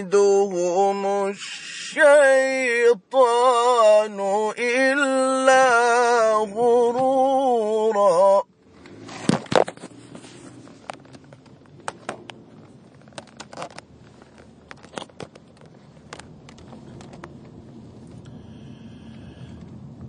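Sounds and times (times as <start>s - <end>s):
sharp clicks and rustles: 8.6s - 18.3s
low rumble: 8.6s - 20.0s.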